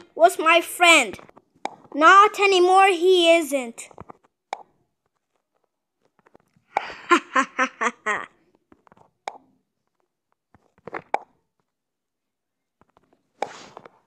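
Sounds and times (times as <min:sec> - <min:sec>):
child laughing: 0:06.8 - 0:08.4.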